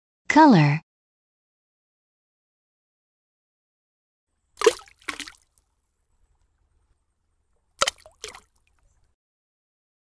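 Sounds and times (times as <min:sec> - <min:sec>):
cartoon wet splashes: 0:04.6 - 0:05.5, 0:07.8 - 0:08.6.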